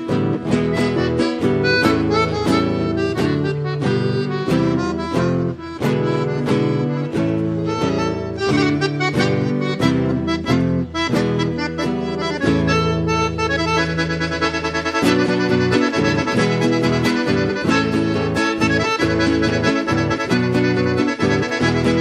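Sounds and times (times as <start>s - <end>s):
button accordion playing: 0.0s - 22.0s
guitar accompaniment: 0.0s - 22.0s.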